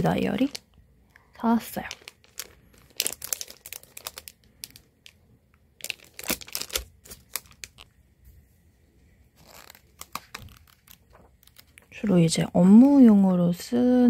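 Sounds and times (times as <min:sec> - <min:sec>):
plastic wrap crinkling: 0:00.0 - 0:08.0, 0:09.3 - 0:13.3
paper rustle: 0:05.8 - 0:07.9, 0:09.4 - 0:12.0.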